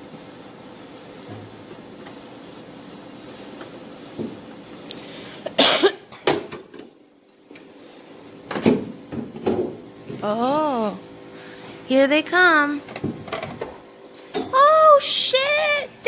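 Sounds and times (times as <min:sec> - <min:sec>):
person coughing: 0:05.5 - 0:06.2.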